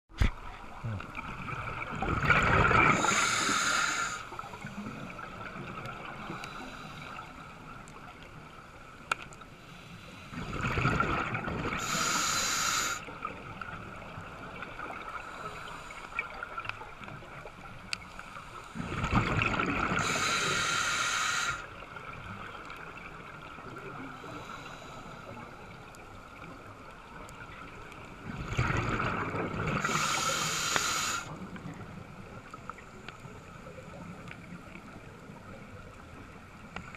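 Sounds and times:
exhaled bubbles underwater: 0:00.5 - 0:06.5, 0:10.3 - 0:12.3, 0:18.8 - 0:20.8, 0:27.3 - 0:32.6
regulator hiss: 0:02.9 - 0:04.4, 0:11.8 - 0:13.1, 0:20.0 - 0:21.7, 0:29.8 - 0:31.4
faint clicks: 0:09.0 - 0:09.5, 0:17.8 - 0:18.4, 0:36.6 - 0:36.9.

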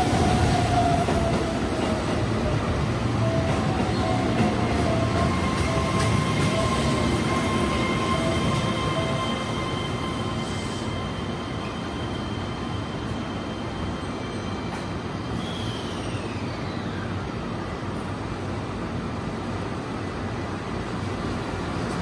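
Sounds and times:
standing train running noise: 0:00.0 - 0:22.0.

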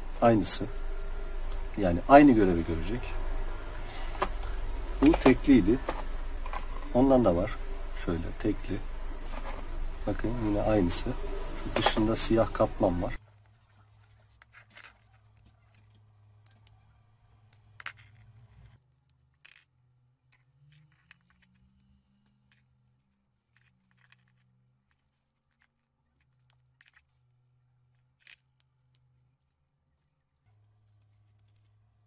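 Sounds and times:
low hum: 0:00.0 - 0:13.2.

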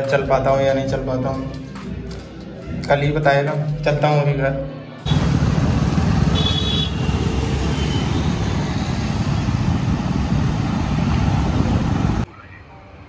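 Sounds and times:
road and traffic noise: 0:04.8 - 0:13.0
wind rushing over microphone: 0:07.0 - 0:12.3.

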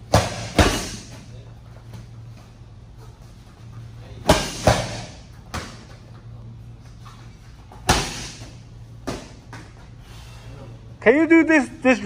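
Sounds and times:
medicine balls thudding: 0:00.0 - 0:01.3, 0:04.2 - 0:06.0, 0:07.7 - 0:09.9.

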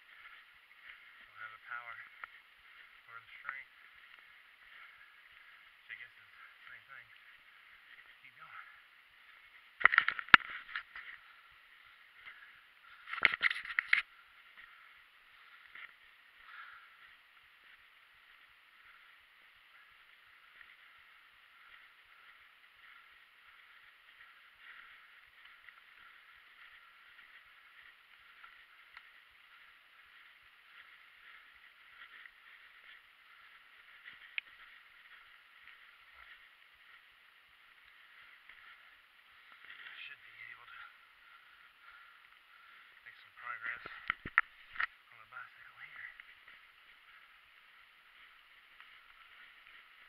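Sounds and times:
bike tyres rolling on dirt: 0:00.0 - 0:50.0
light ticks: 0:34.0 - 0:36.4.

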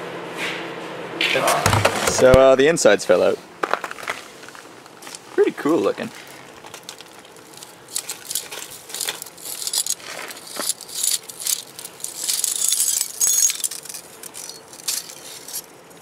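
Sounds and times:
broken glass clinking: 0:12.2 - 0:15.6.

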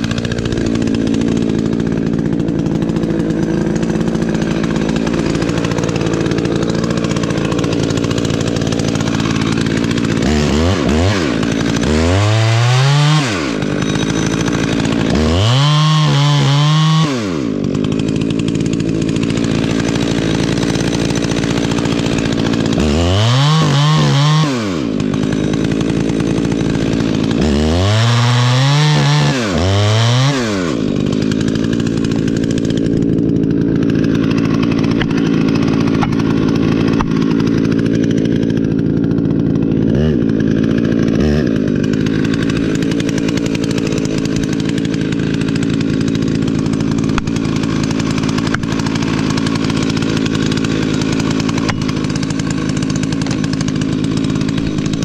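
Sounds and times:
chainsaw engine revving: 0:00.0 - 0:55.0
two-stroke chainsaw idling: 0:00.0 - 0:55.0.

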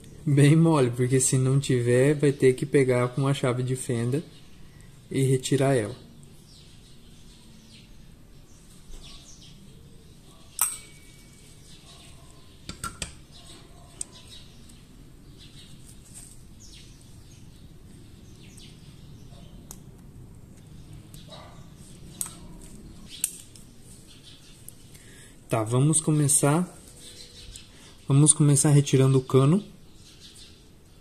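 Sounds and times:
faint bird chirps: 0:06.0 - 0:19.7.

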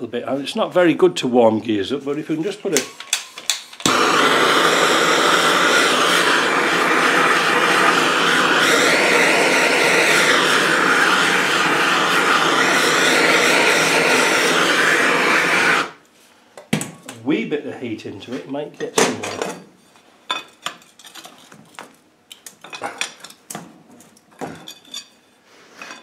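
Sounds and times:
blowtorch hissing: 0:03.5 - 0:16.0.

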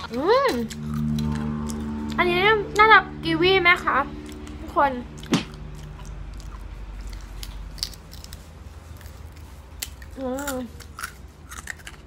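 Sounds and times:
person humming mmm: 0:00.0 - 0:05.7
crunching crispy chip: 0:06.2 - 0:12.0.

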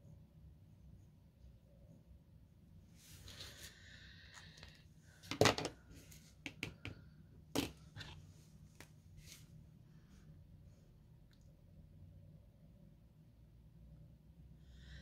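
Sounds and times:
pens clicking and tapping on desk: 0:06.4 - 0:07.0.

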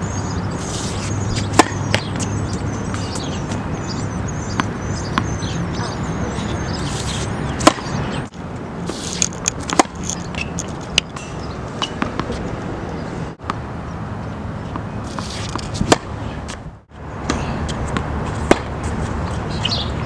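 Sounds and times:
outdoor background noise: 0:00.0 - 0:20.0
tennis racket hitting ball: 0:00.6 - 0:03.6, 0:06.9 - 0:08.2, 0:08.9 - 0:12.5, 0:14.7 - 0:16.6, 0:17.2 - 0:19.4.

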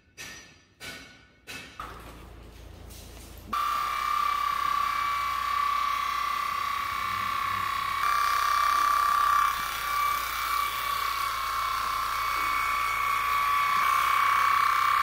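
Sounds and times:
electric clippers buzzing: 0:03.6 - 0:15.0.

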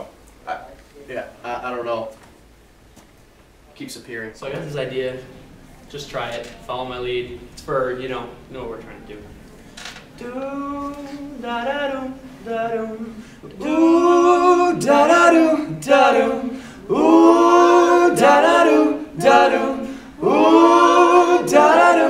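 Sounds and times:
men singing in close harmony: 0:10.2 - 0:22.0.

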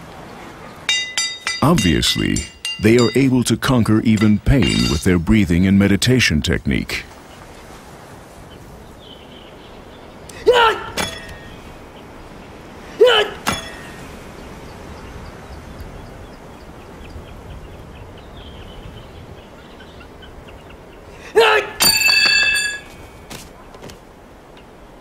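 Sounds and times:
steel blade ringing: 0:00.9 - 0:03.4, 0:04.2 - 0:05.2, 0:11.0 - 0:11.5, 0:13.5 - 0:14.0, 0:21.8 - 0:23.3
person shouting sharply: 0:10.4 - 0:11.0, 0:13.0 - 0:13.4, 0:21.3 - 0:21.8.

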